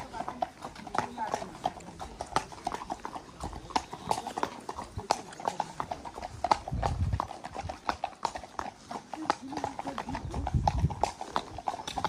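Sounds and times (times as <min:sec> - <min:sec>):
hooves clip-clopping on tarmac: 0:00.0 - 0:12.0.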